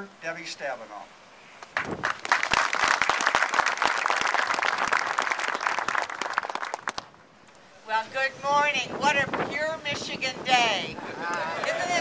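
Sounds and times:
audience applauding: 1.8 - 7.1.

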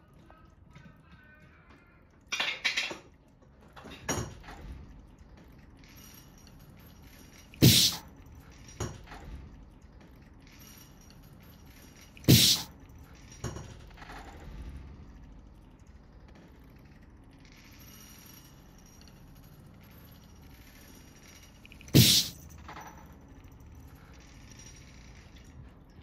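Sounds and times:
cat paws scraping on wood: 7.6 - 8.0, 12.3 - 12.7.

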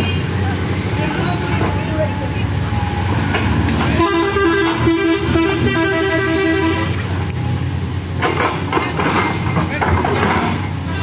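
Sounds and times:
excavator diesel engine running: 0.0 - 11.0
musical multi-tone vehicle horn: 3.9 - 7.1.

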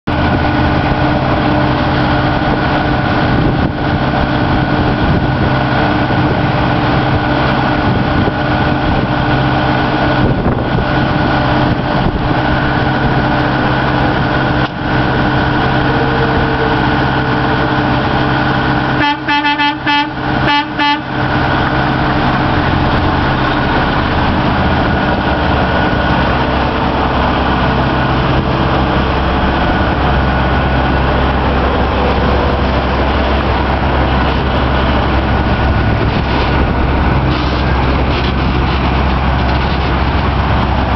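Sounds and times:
truck diesel engine running: 0.0 - 40.9
truck horn toots: 15.1 - 17.7, 18.9 - 21.4.

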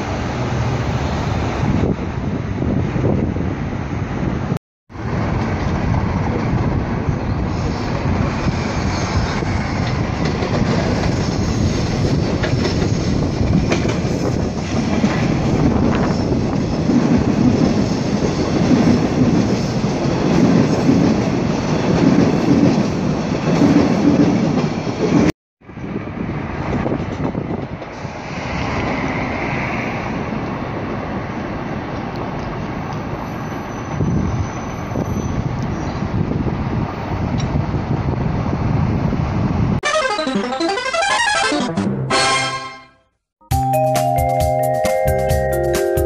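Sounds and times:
subway train rumbling: 0.0 - 39.8
wheels clickety-clack over rail joints: 5.0 - 39.6
wheel squeal: 33.2 - 36.0.

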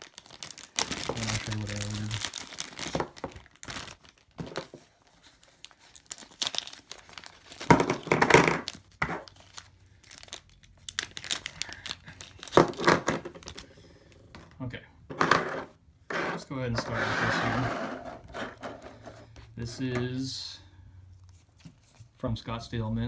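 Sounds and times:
plastic bags crinkling and tearing: 0.0 - 13.8.

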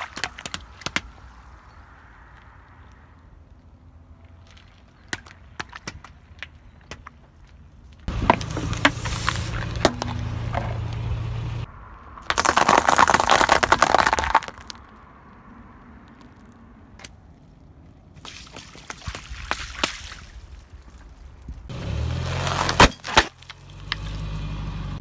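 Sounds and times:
car tyre crushing objects: 4.2 - 11.5, 12.1 - 15.2, 16.0 - 24.4
dense crackling: 8.0 - 15.1
low rumble: 8.1 - 12.3.

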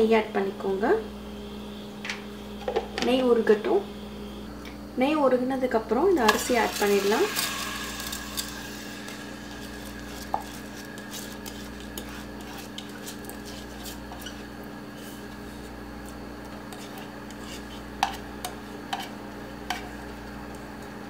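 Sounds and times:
steady low hum: 0.0 - 21.0
bowl knocking and scraping pot: 6.3 - 14.4, 16.7 - 19.1
rice poured into a pot: 6.6 - 10.8.

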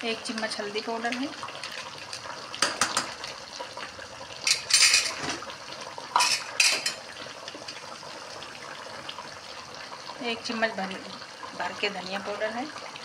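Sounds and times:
metal spoon scraping a metal pan: 4.5 - 5.2.

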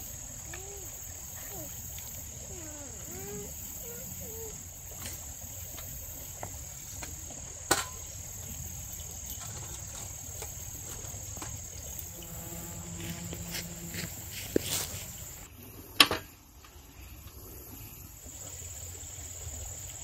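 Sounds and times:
insects trilling: 0.0 - 15.5
camp stove knocking on bricks: 7.0 - 8.1.

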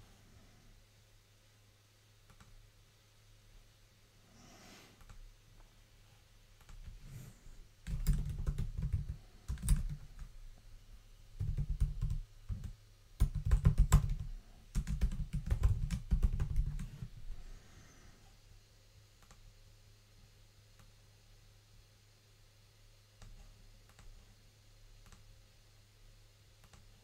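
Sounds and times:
typing on a keyboard: 7.8 - 10.3, 11.4 - 17.1, 23.2 - 24.2.

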